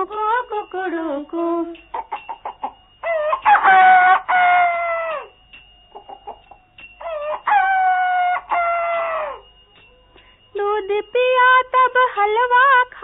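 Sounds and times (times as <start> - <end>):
rooster crowing: 2.0 - 9.5.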